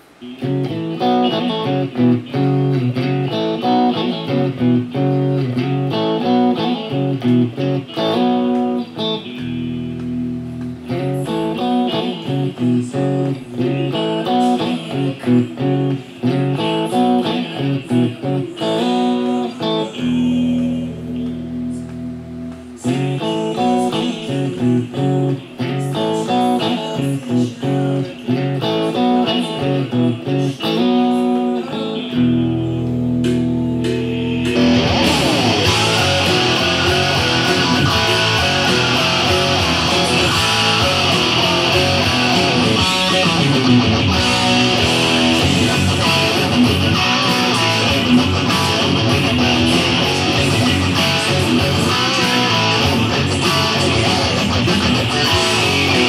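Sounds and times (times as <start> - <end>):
electric guitar riff: 0.0 - 56.0
rock band with drums: 9.4 - 19.4, 32.9 - 56.0.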